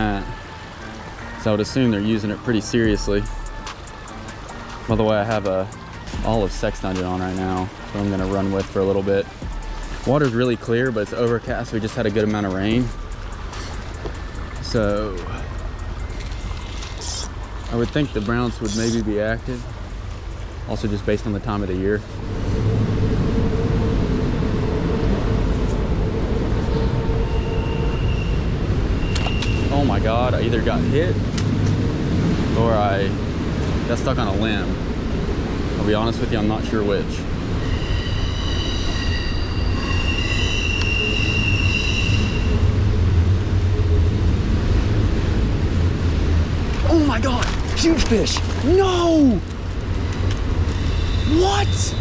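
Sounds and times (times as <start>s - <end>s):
creek rushing: 0.0s - 38.2s.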